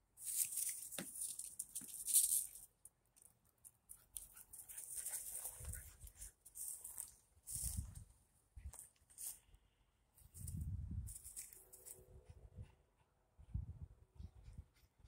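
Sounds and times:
dog rustling through dry grass: 4.6s - 8.0s.

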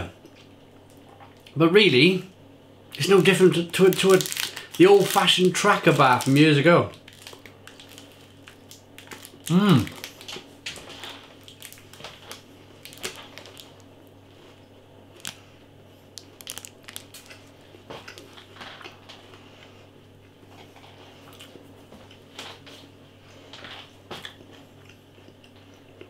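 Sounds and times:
chewing crunchy candy bar: 2.9s - 19.4s, 23.5s - 26.0s.

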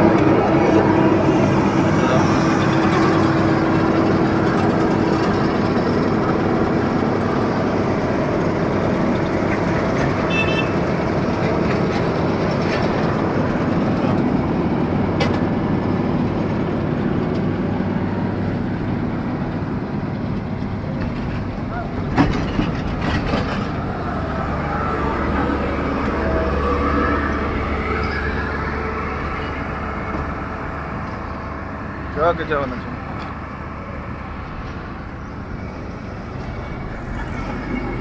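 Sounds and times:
steady hum: 0.0s - 9.8s
diesel engine running: 0.0s - 38.0s.

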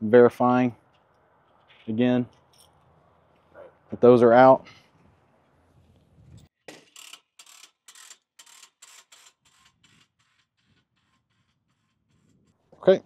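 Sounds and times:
cable reel ratcheting clicks: 6.7s - 11.2s.

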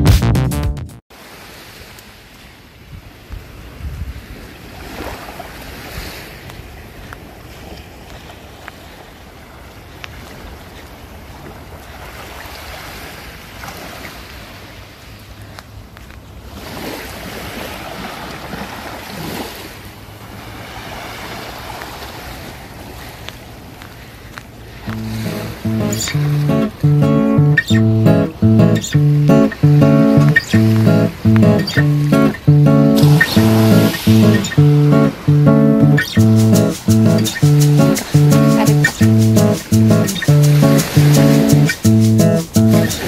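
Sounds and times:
electronic music jingle: 0.0s - 1.0s, 25.0s - 43.0s
small waves lapping on shore: 1.1s - 43.0s
wind rumbling on microphone: 2.8s - 7.6s.

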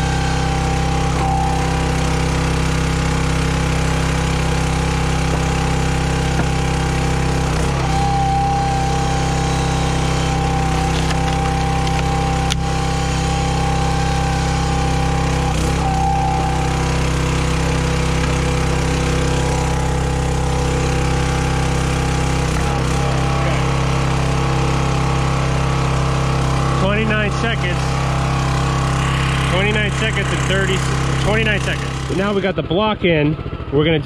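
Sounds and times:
high whine: 0.0s - 33.8s
log splitter gas engine running: 0.0s - 34.0s.

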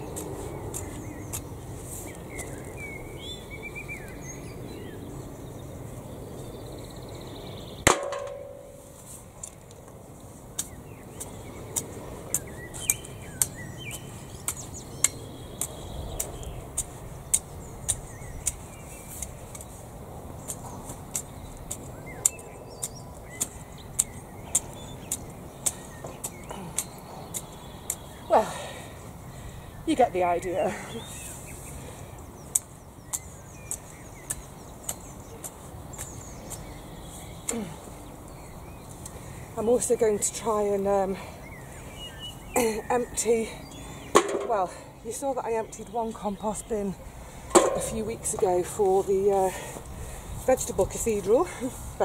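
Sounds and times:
birds chirping: 0.0s - 52.0s
rake striking metal clang: 7.9s - 9.0s, 44.2s - 44.6s, 47.5s - 48.4s.

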